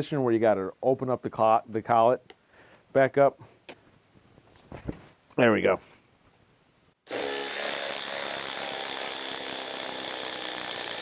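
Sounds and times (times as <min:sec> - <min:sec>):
impact driver hammering screw into log: 0:07.1 - 0:11.0.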